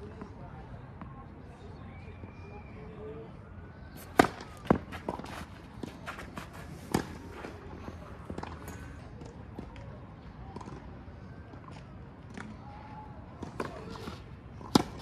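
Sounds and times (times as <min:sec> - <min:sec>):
tennis ball hit by racket: 0:04.0 - 0:07.4, 0:14.6 - 0:15.0
tennis ball bouncing on clay: 0:04.0 - 0:07.6.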